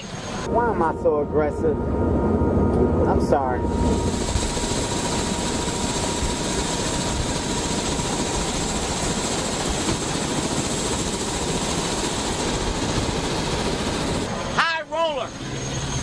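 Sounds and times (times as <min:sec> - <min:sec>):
thin high whine: 0:00.0 - 0:06.2
helicopter engine and rotor: 0:00.0 - 0:16.0.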